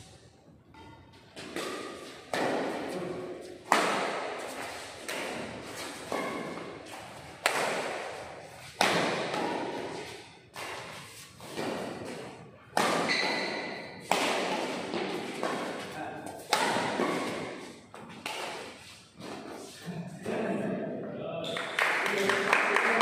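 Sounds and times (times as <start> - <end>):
rackets hitting shuttlecock: 0.7 - 19.5.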